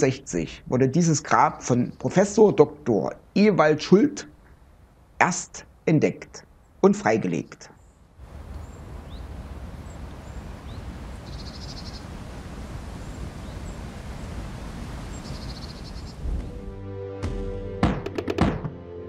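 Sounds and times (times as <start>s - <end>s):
wind noise on microphone: 8.2s - 16.6s
faint high bird chirps: 8.6s - 12.1s, 15.1s - 16.2s
small bird rapid trill: 8.6s - 12.1s, 15.1s - 16.2s.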